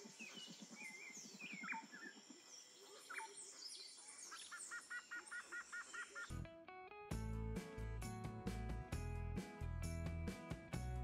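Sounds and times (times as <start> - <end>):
birds chirping and calling: 0.0 - 6.3.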